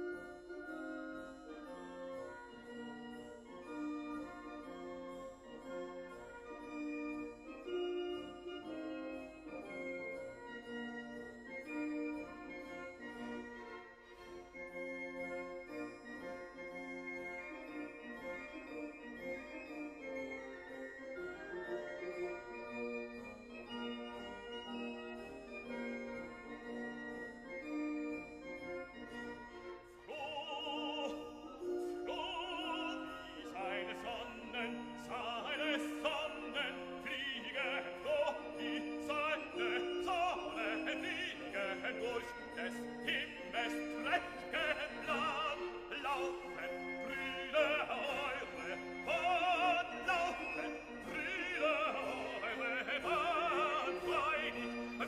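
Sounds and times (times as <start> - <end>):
orchestra playing: 7.1 - 55.0
operatic voice with vibrato: 30.0 - 55.0.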